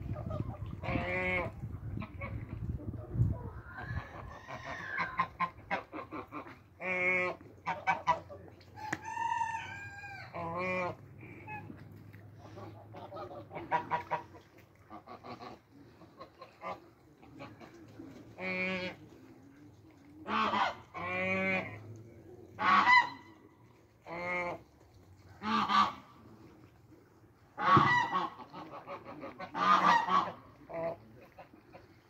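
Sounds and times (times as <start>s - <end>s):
geese honking: 12.4s - 15.6s, 20.2s - 21.8s, 22.6s - 23.4s, 25.4s - 26.2s, 27.6s - 31.9s.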